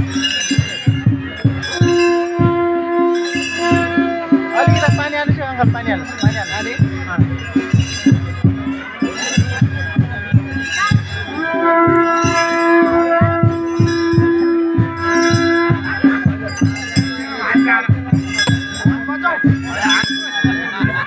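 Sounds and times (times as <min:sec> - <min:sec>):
drums beating a driving rhythm: 0:00.0 - 0:21.0
long steady held note: 0:01.7 - 0:05.4, 0:10.6 - 0:17.7.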